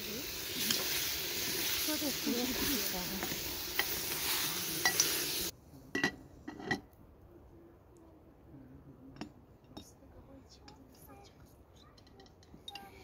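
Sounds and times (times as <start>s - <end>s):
vegetables sizzling in a pot: 0.0s - 5.6s.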